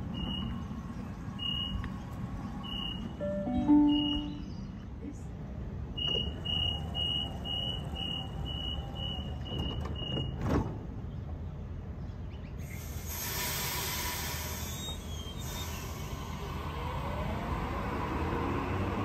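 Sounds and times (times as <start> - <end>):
train pulling away hiss: 12.6 - 16.7.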